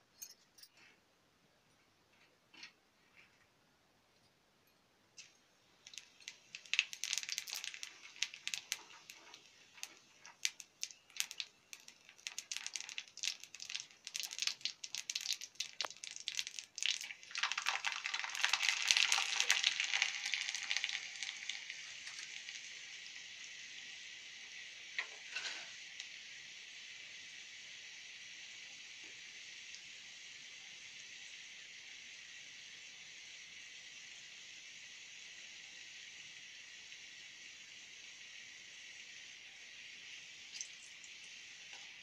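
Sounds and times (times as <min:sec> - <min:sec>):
seeds popping in hot oil: 0:05.1 - 0:42.0
paste sizzling in oil: 0:05.2 - 0:42.0.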